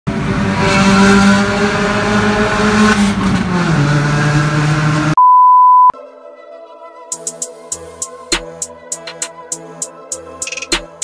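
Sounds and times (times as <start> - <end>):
car engine revving: 0.1 - 5.2
electronic beep: 5.2 - 6.0.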